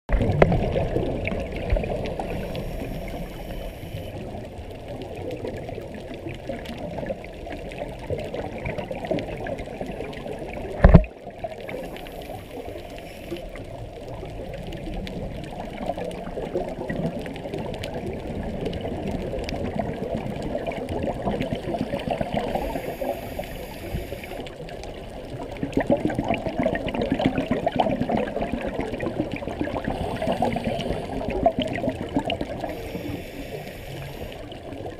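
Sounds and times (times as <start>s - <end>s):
underwater bubbles gurgling: 0.1s - 34.9s.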